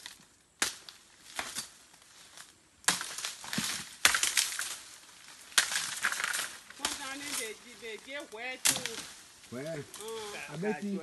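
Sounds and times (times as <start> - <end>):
dry leaves crackling and rustling: 0.0 - 11.0
chopping strikes: 8.6 - 9.1.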